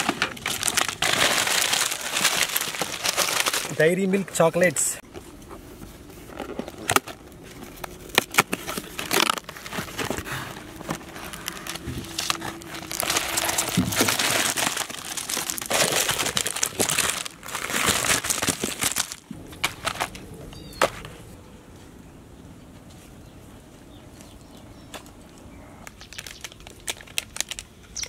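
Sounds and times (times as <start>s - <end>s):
chocolate wrappers crinkling: 0.0s - 4.4s, 6.5s - 20.3s, 25.9s - 28.0s.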